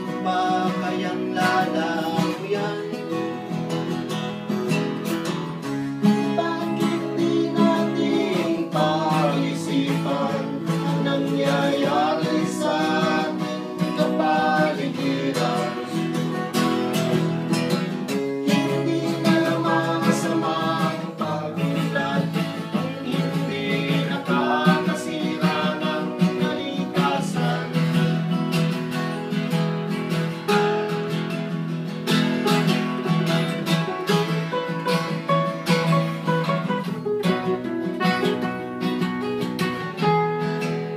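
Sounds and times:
person singing: 0.0s - 3.8s, 5.9s - 28.5s
acoustic guitar strumming: 0.0s - 40.9s.

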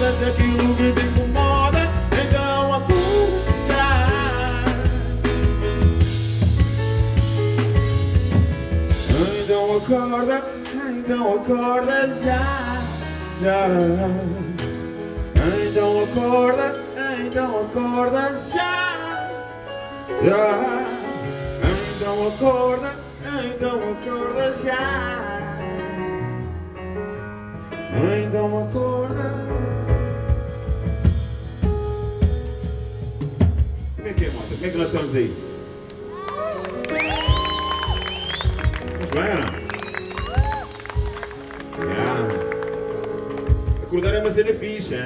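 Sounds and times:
man singing into microphone: 0.0s - 5.5s, 9.0s - 26.0s, 27.8s - 30.1s
band with steady bass: 0.0s - 45.0s.

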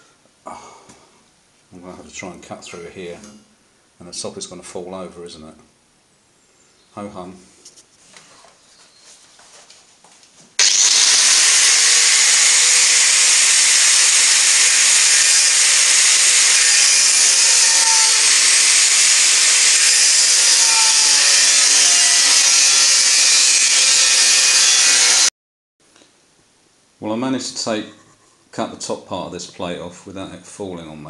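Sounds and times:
angle grinder cutting steel: 10.6s - 25.3s.

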